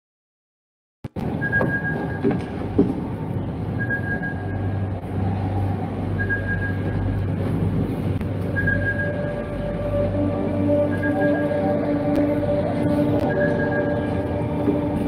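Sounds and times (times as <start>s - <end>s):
low electronic drone: 1.2s - 15.0s
high electronic beep: 1.4s - 2.4s, 3.8s - 4.9s, 6.1s - 7.1s, 8.5s - 9.6s, 10.8s - 11.8s, 13.2s - 14.4s.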